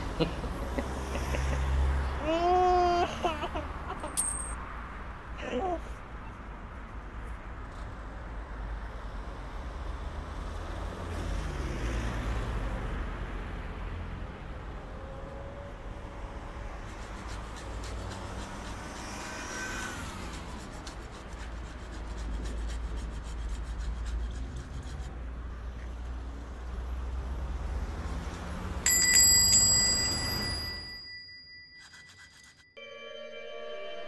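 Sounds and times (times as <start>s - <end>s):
bright ringing chime: 28.9s - 34.0s.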